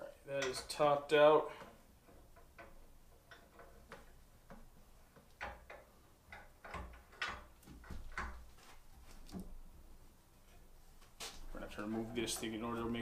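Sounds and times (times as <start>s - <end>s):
drill press table clicks and knocks: 1.6s - 8.5s.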